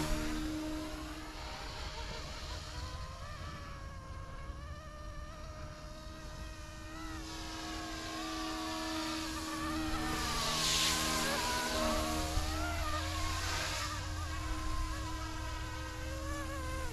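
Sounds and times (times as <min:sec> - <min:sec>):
toy helicopter motor whine: 0:00.0 - 0:16.9.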